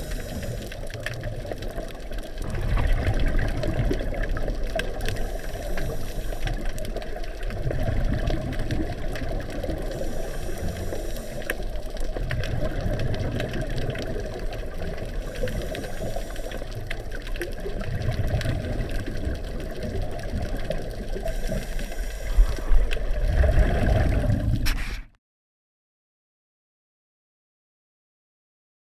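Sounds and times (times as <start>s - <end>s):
regulator inhale hiss: 0.0s - 1.0s, 5.0s - 7.1s, 9.6s - 11.9s, 15.2s - 17.2s, 21.0s - 23.0s
exhaled bubbles rumbling: 0.0s - 24.8s
steady underwater rumble: 0.0s - 25.0s.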